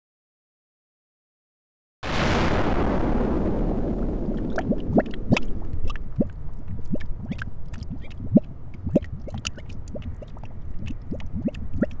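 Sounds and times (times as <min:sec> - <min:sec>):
low rumble: 0:02.1 - 0:12.0
thick liquid gurgling: 0:04.2 - 0:12.0.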